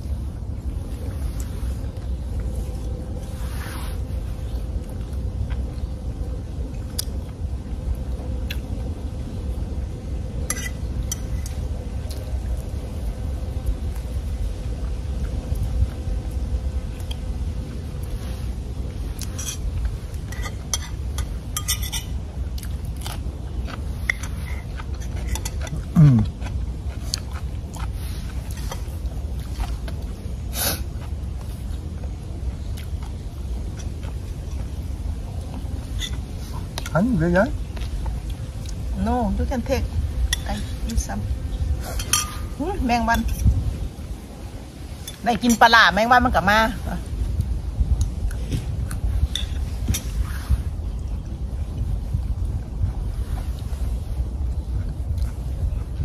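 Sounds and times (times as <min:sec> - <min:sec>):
wind rumble on microphone: 0:00.0 - 0:56.0
faint chewing: 0:18.9 - 0:39.0.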